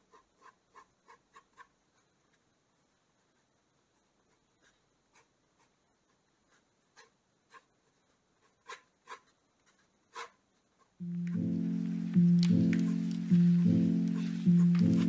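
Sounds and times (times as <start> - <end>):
pencil scratching on paper: 0.0 - 15.0
background music: 11.0 - 15.0.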